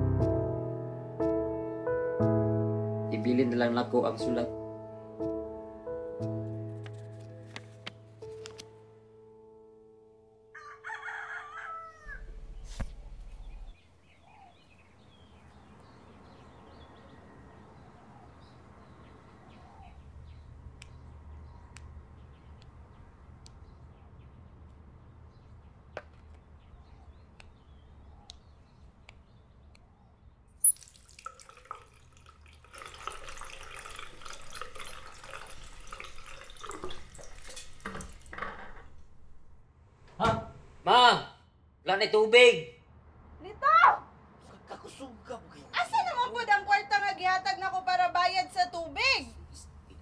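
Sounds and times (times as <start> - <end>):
tap spluttering trickle of water: 30.6 - 38.8.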